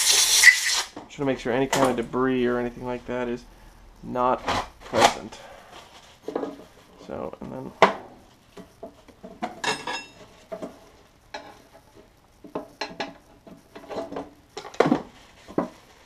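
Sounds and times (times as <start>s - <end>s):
metal tools clinking: 9.6s - 10.2s.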